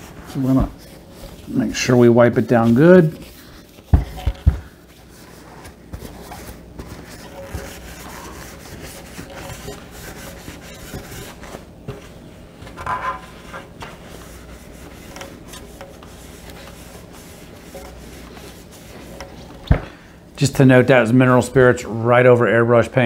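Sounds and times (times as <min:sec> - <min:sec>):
cloth rag rubbing metal: 0:00.0 - 0:19.6.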